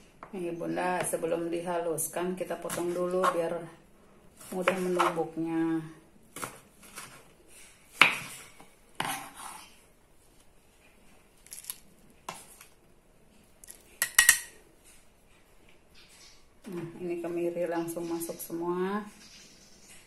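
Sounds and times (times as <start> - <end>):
knife chopping on wooden board: 9.0 - 9.6.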